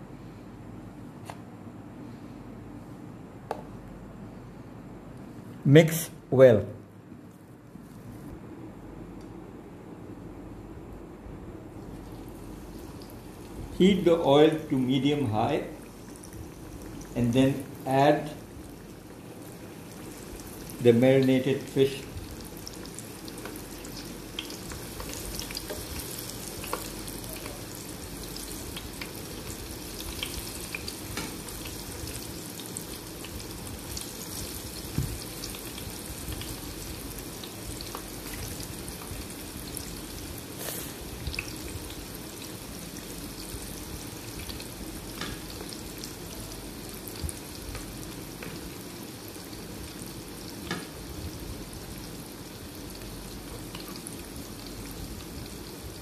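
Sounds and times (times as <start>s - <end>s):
fish sizzling in oil: 15.4s - 56.0s
oil popping and crackling: 22.3s - 40.0s.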